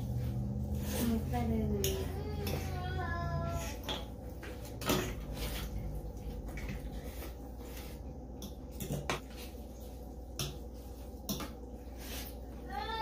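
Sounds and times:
cutlery scraping ceramic bowl: 0:03.5 - 0:05.9.

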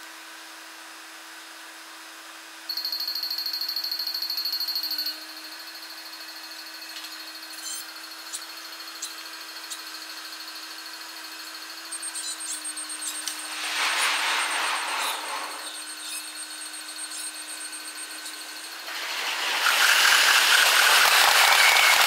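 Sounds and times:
level-crossing bell: 0:02.7 - 0:05.9
steady high hum: 0:04.9 - 0:20.6
train passing: 0:13.0 - 0:16.6, 0:18.8 - 0:22.0
scattered clicks: 0:19.4 - 0:22.0.

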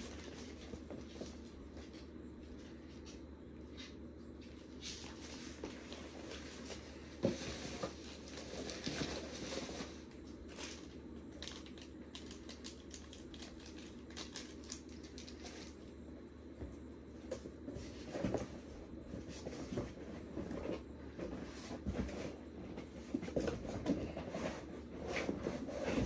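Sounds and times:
plastic bag crinkling: 0:10.4 - 0:15.9.

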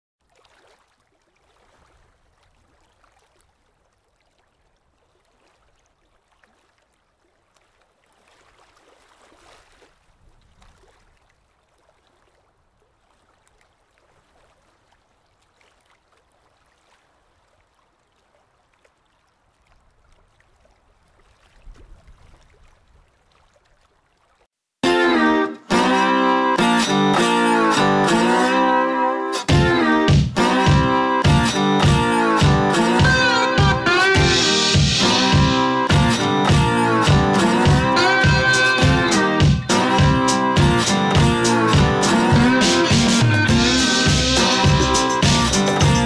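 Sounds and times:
water swishing past hull: 0:00.2 - 0:24.5.

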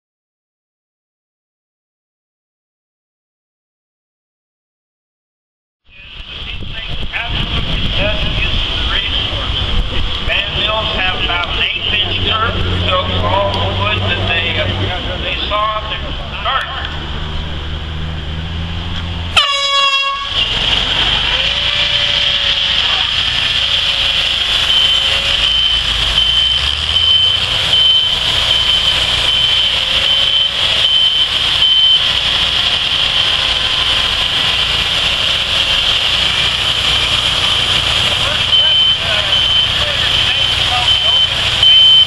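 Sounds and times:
sawmill engines running: 0:05.9 - 0:42.0
air horn blast: 0:19.3 - 0:20.6, 0:21.2 - 0:32.0.

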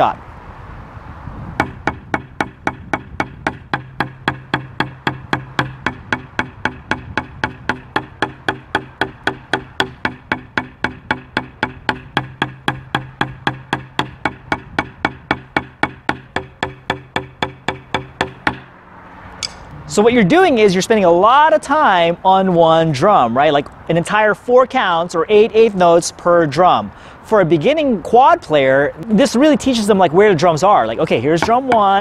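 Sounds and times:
sticks striking practice pads: 0:01.6 - 0:18.7, 0:19.4 - 0:19.7, 0:31.4 - 0:32.0.

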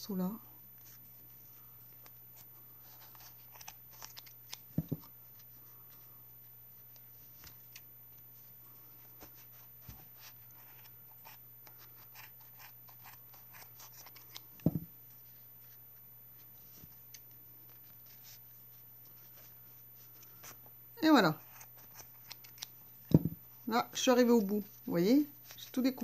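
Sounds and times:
dull knock: 0:04.8 - 0:05.0, 0:14.6 - 0:14.9, 0:23.1 - 0:23.4.

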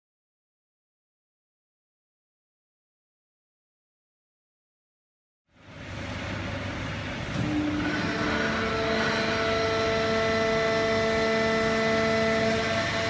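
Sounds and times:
steady whining tones: 0:05.6 - 0:13.0
baler machine running: 0:05.7 - 0:13.0.

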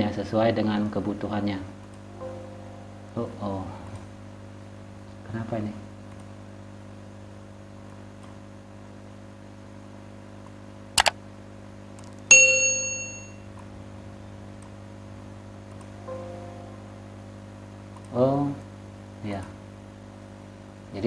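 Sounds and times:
mains hum: 0:00.0 - 0:21.0
computer alert ding: 0:12.3 - 0:13.4.

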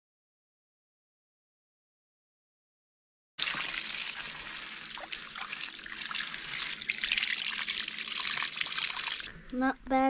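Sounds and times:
garden hose water splashing: 0:03.4 - 0:09.3.

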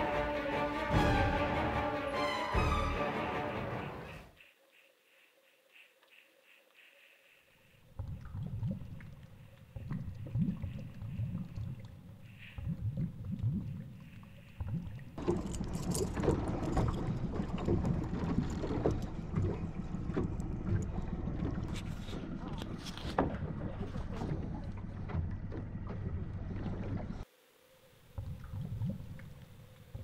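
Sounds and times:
muffled underwater sloshing: 0:07.3 - 0:27.3, 0:28.1 - 0:30.0
water against boat hull: 0:07.8 - 0:27.2.

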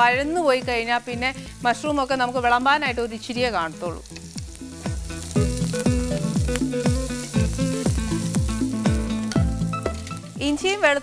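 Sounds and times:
onions sizzling in a frying pan: 0:00.0 - 0:11.0
music with deep thumping beat: 0:04.2 - 0:10.6.

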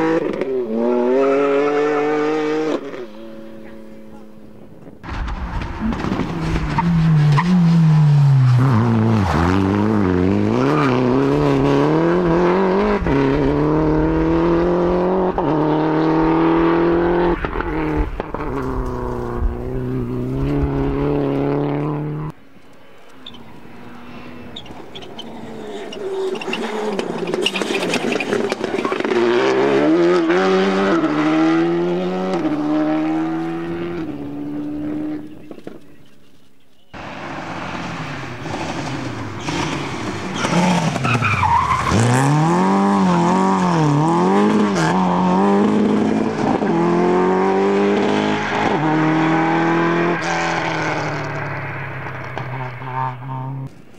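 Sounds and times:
rally car engine revving: 0:00.0 - 0:22.4, 0:23.2 - 0:35.8, 0:37.0 - 0:53.8
rally car accelerating past: 0:41.8 - 0:53.7.

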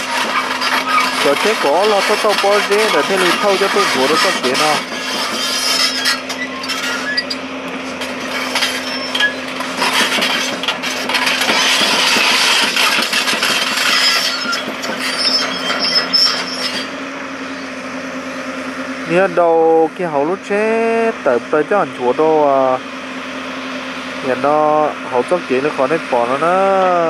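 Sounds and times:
dirt and stones clattering into truck: 0:00.0 - 0:16.0
excavator bucket scraping and knocking: 0:00.0 - 0:17.0
excavator diesel engine humming: 0:00.0 - 0:27.0.

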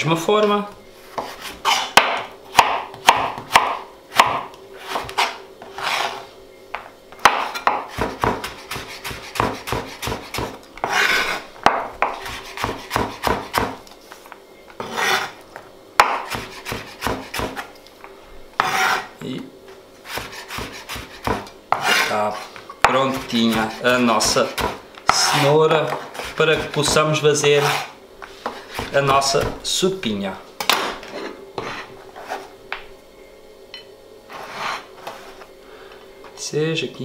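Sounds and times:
knife scraping slices: 0:01.1 - 0:02.0, 0:04.8 - 0:06.3, 0:07.4 - 0:11.5, 0:14.8 - 0:15.4, 0:16.2 - 0:17.7, 0:18.6 - 0:19.2, 0:20.0 - 0:29.4, 0:31.1 - 0:32.5, 0:34.3 - 0:35.4
knife chopping on plastic board: 0:01.2 - 0:05.4, 0:07.2 - 0:13.8, 0:16.0 - 0:17.7, 0:20.1 - 0:22.1, 0:22.8 - 0:29.6.

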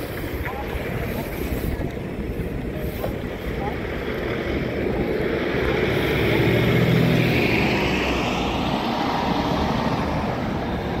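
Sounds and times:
bus engine passing: 0:00.0 - 0:11.0
rising engine whine: 0:04.0 - 0:11.0.

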